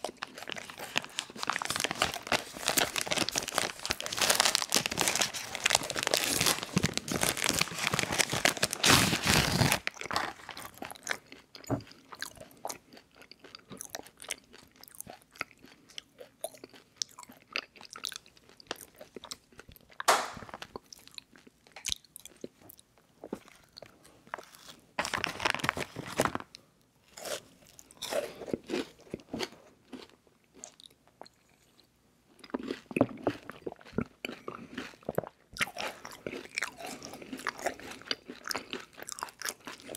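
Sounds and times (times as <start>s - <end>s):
plastic wrapper crinkling: 0.0s - 10.8s, 24.3s - 26.5s
chewing a bar: 9.8s - 24.8s, 27.2s - 39.9s.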